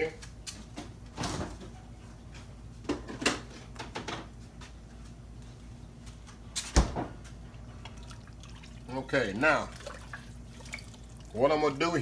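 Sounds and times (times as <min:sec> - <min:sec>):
knocks and clicks of kitchen items: 0:00.5 - 0:04.4.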